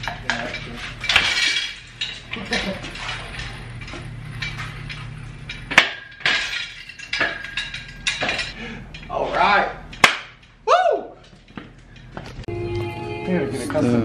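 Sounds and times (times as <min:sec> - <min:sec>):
chain clinking and rattling: 0:00.0 - 0:09.2.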